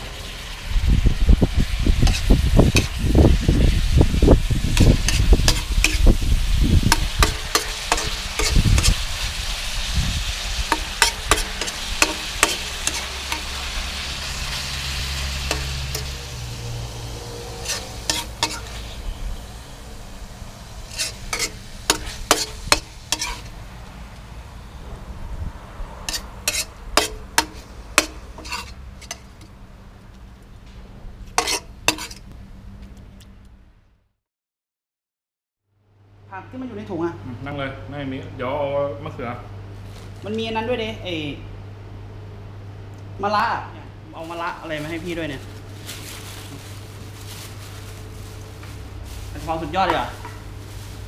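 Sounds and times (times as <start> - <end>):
food sizzling: 0.0 - 24.7, 26.0 - 30.6, 31.2 - 32.6, 44.1 - 51.0
metal spatula scraping wok: 1.7 - 23.6, 26.0 - 29.6, 31.2 - 32.3.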